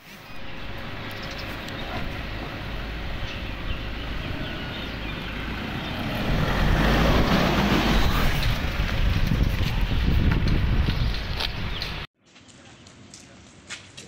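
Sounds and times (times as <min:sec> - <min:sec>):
motor vehicle running: 0:00.0 - 0:12.1.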